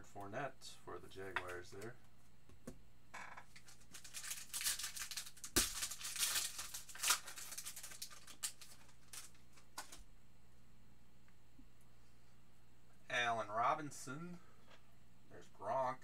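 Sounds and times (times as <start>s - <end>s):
foil wrapper tearing and crinkling: 3.6s - 9.4s.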